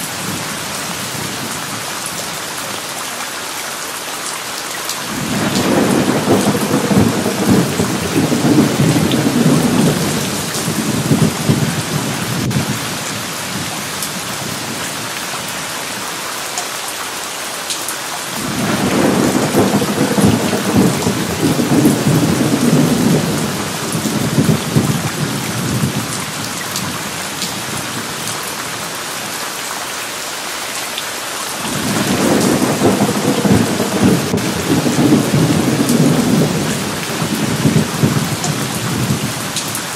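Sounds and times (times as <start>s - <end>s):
steady rain: 0.0s - 39.9s
rolling thunder: 5.1s - 12.8s, 18.4s - 27.7s, 31.6s - 39.4s.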